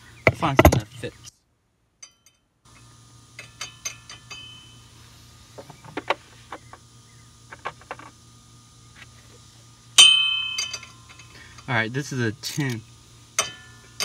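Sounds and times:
metal tools clinking: 2.0s - 2.4s, 3.3s - 4.8s, 10.0s - 11.7s, 13.4s - 14.0s.

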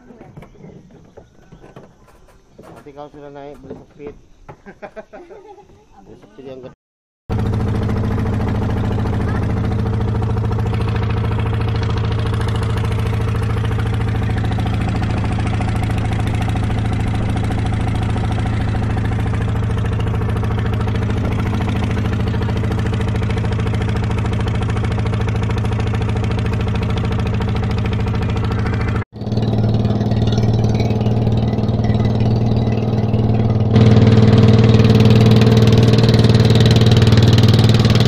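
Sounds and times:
boat engine drone: 7.3s - 38.0s
rushing water noise: 8.0s - 29.0s, 29.9s - 38.0s.

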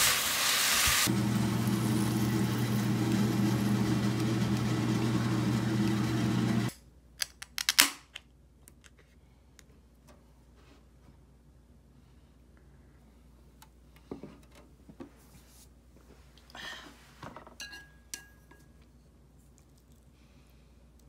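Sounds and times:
food sizzling: 0.0s - 6.7s
kitchen appliance humming: 0.5s - 6.7s.

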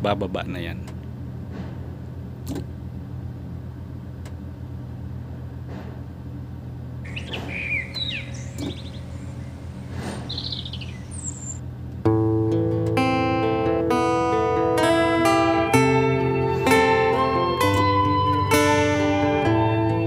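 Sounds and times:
diesel engine idling: 0.0s - 12.1s, 14.8s - 19.9s
birds chirping: 7.0s - 11.7s.

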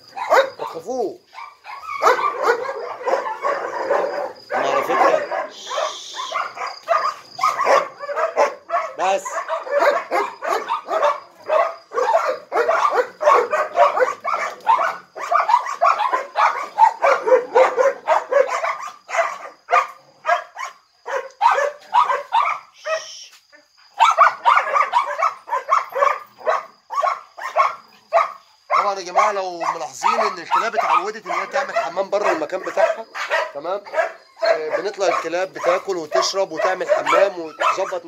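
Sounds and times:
dogs barking: 0.0s - 38.0s.

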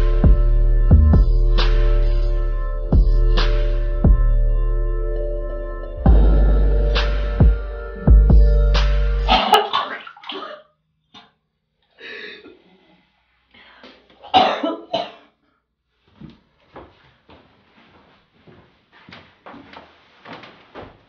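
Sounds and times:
background music: 0.0s - 9.6s
person coughing: 9.3s - 10.6s, 14.2s - 15.4s.

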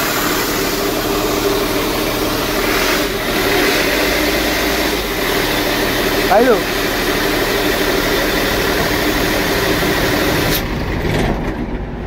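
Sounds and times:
air hissing: 0.0s - 10.7s
diesel engine idling: 0.0s - 12.0s.

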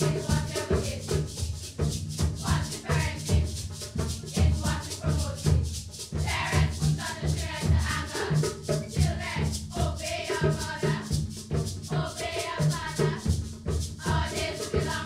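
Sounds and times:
girls singing together: 0.0s - 1.4s, 2.4s - 3.6s, 4.3s - 5.6s, 6.2s - 11.2s, 11.9s - 13.4s, 14.0s - 15.0s
hand drum: 0.0s - 15.0s
rattling percussion: 0.0s - 15.0s.

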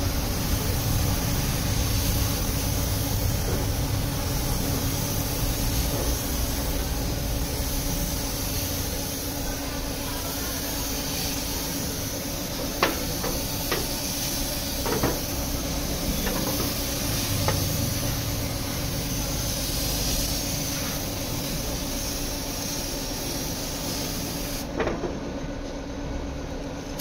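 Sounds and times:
paint spray gun hissing: 0.0s - 24.8s.

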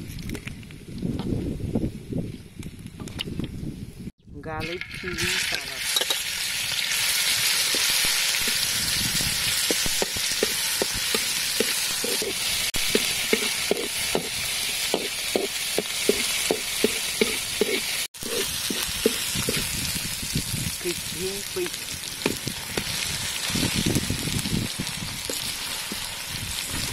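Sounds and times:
food sizzling in hot oil: 4.6s - 26.9s
metal spatula scraping wok: 9.6s - 15.2s.

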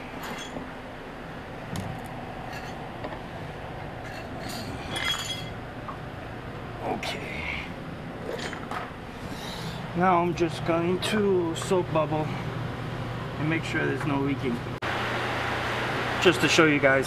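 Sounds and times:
steady background hum: 0.0s - 17.0s
light clinks and knocks: 4.0s - 5.6s.

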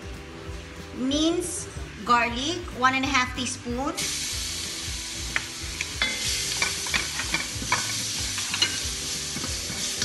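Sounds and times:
garlic sizzling in hot oil: 3.9s - 10.0s.

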